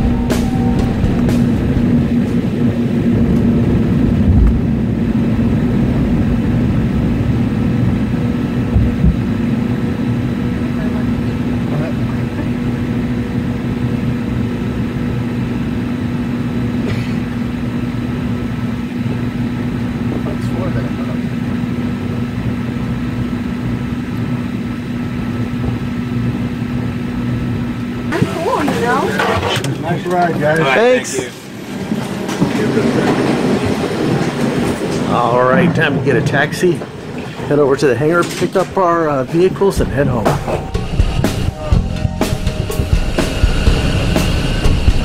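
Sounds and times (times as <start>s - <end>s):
constant low hum: 0.0s - 32.4s, 34.1s - 45.0s
jet engines rumbling: 0.0s - 45.0s.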